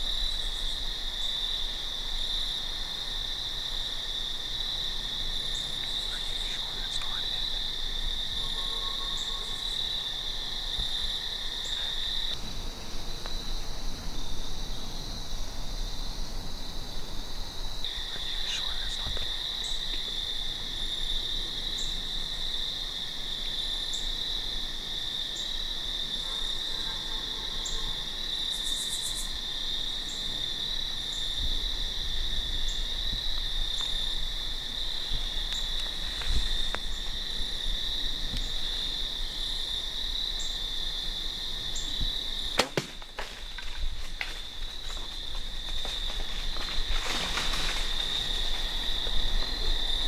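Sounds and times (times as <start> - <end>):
insect ticking: 0.0 - 13.8, 17.6 - 26.0, 27.6 - 50.0
crickets and insects chorus: 0.0 - 50.0
sharp crack of bow shot: 42.6 - 43.2
rustling and crashing in dry leaves: 42.6 - 49.7.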